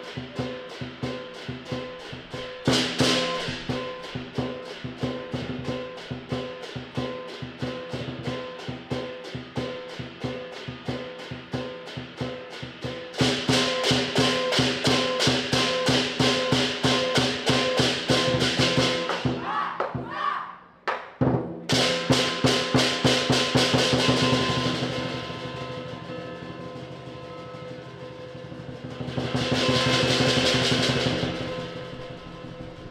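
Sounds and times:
drum cymbals and gong beat: 0.0s - 19.5s, 21.2s - 32.9s.

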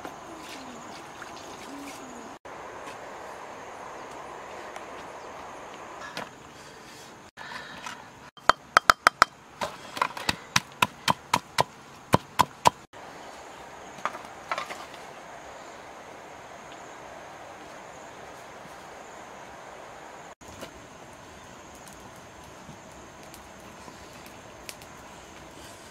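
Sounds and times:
stone pestle pounding in mortar: 8.4s - 9.3s.

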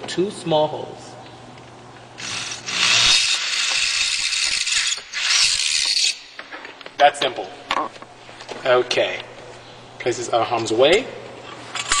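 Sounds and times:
power drill boring holes: 2.2s - 6.2s.

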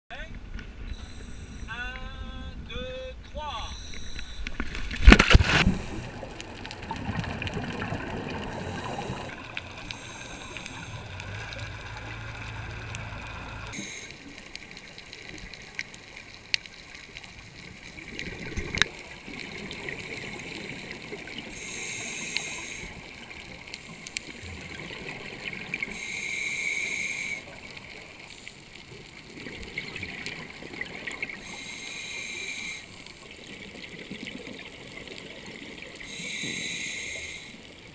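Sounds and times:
loud splash: 4.8s - 6.1s
muffled underwater noise: 5.7s - 15.0s, 36.0s - 37.8s.

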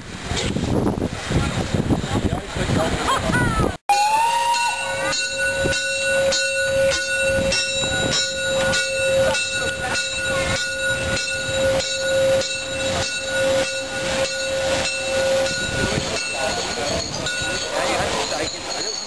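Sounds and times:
steam locomotive chugging: 4.0s - 19.0s
steady tone: 4.2s - 19.0s.

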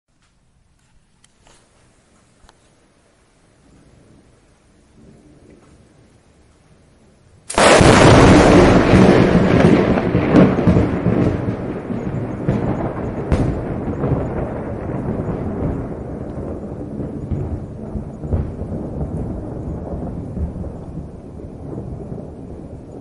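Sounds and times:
rolling thunder rumble: 3.5s - 23.0s
sharp thunder cracks: 7.5s - 23.0s
thunderclap: 7.5s - 23.0s.

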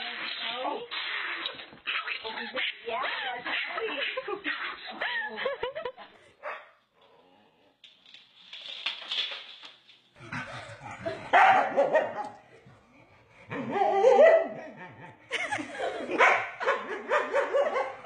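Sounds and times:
dogs growling and barking: 10.2s - 12.5s, 13.1s - 18.0s.

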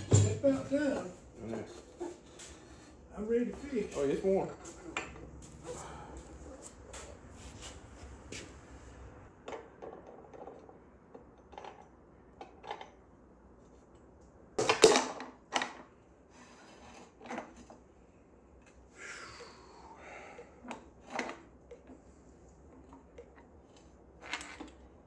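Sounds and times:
metal tools clinking: 0.0s - 1.1s.

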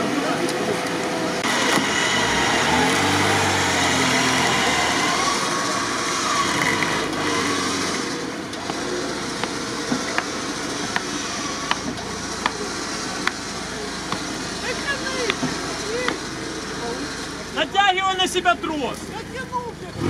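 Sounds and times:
car engine running: 0.0s - 20.0s.

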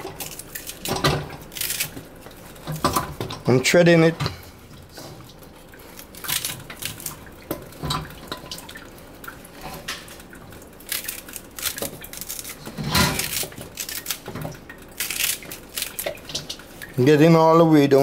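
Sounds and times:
knife snapping through stalks: 0.2s - 2.0s, 10.9s - 14.3s, 15.0s - 16.5s.

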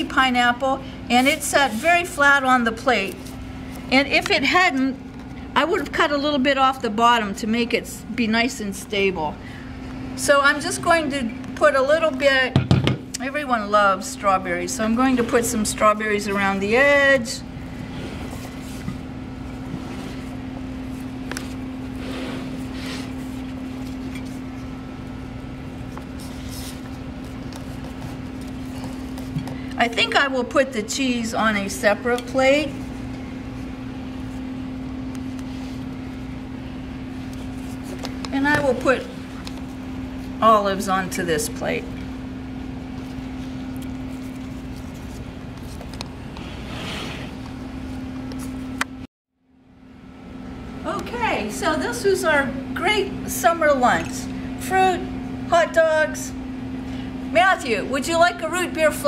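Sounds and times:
machine hum: 0.0s - 59.0s.

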